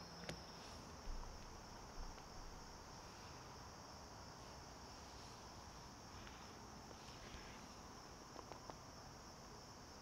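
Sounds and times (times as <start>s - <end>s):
crickets trilling: 0.0s - 10.0s.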